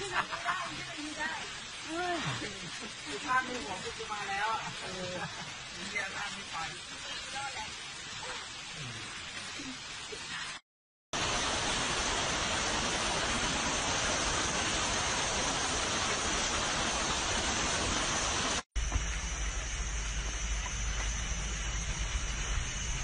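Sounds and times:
rushing hiss: 0.0 - 10.6, 11.2 - 23.0
low steady hum: 18.8 - 23.0.

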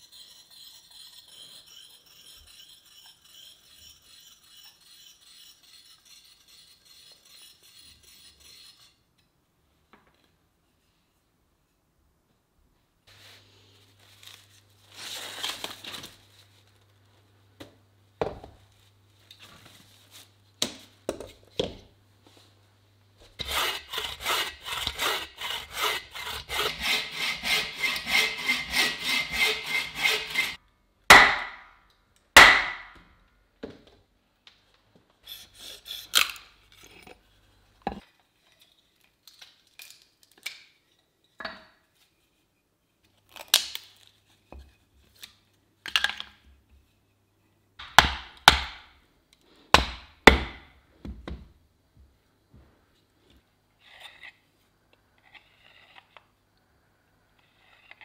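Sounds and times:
hand saw cutting log: 23.4 - 31.5.

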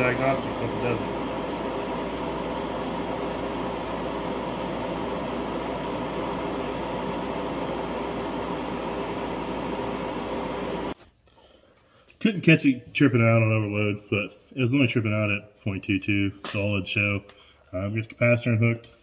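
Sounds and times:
fan whirring: 0.0 - 11.0
faint hum: 0.0 - 12.1.

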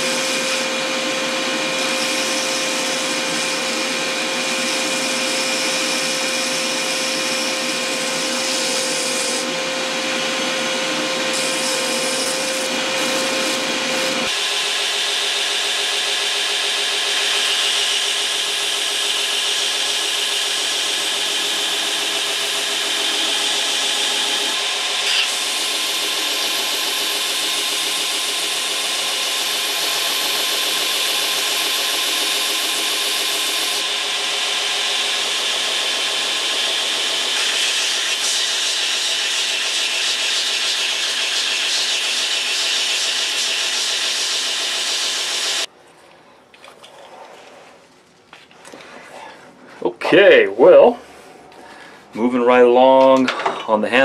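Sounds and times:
belt grinder sanding: 11.3 - 14.4, 15.7 - 45.7.

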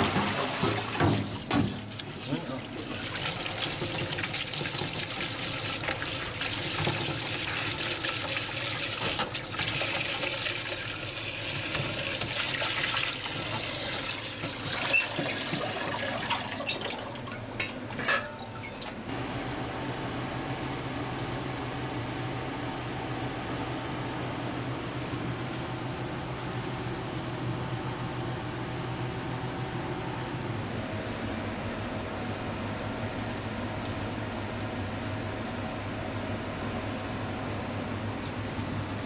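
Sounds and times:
tap water splashing into colander: 0.0 - 19.0
steady low hum: 17.4 - 39.0.

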